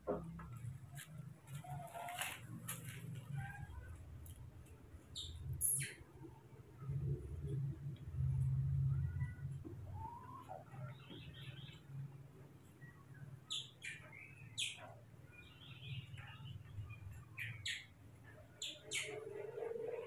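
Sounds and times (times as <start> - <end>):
low steady hum: 0.0 - 13.8.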